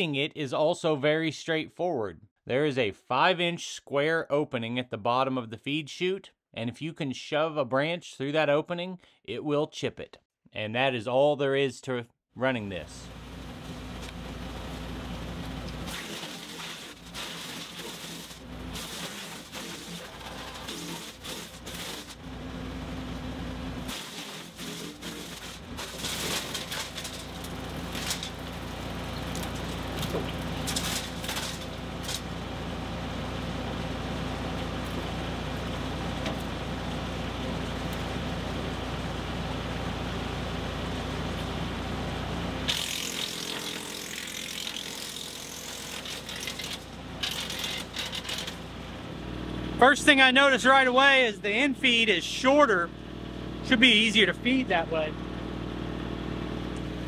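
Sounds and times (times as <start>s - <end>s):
wood chipper and tractor hum: 12.9s - 57.0s.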